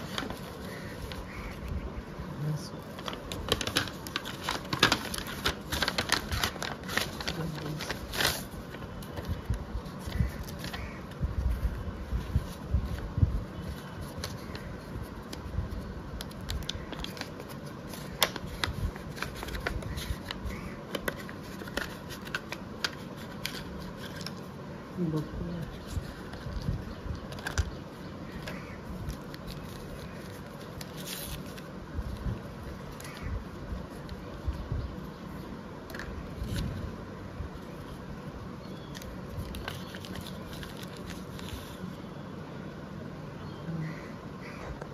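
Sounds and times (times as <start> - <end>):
paper rustling and crinkling: 0.0 - 1.8, 2.4 - 34.6, 35.3 - 36.9, 38.9 - 42.0.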